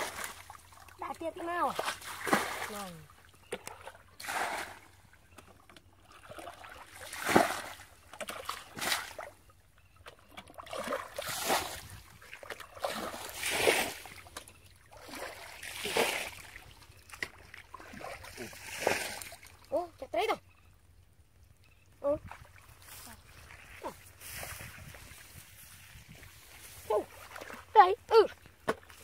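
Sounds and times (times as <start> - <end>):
bucket splashing in muddy water: 0.0 - 9.4, 10.0 - 19.6.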